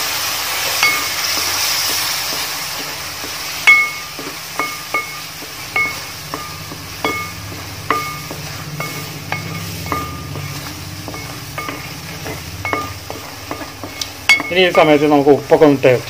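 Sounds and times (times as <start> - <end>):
spatula knocking metal pot: 2.3 - 15.2
low hum: 2.8 - 14.5.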